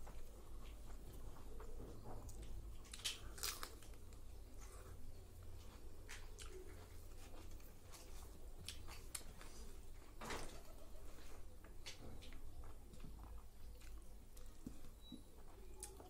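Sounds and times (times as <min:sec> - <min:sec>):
chewing: 0:02.3 - 0:09.7, 0:12.3 - 0:15.2.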